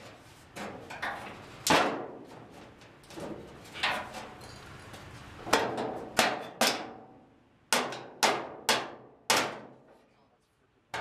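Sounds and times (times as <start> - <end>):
knocks on sheet metal: 1.7 - 2.2, 5.5 - 7.1, 7.7 - 9.8.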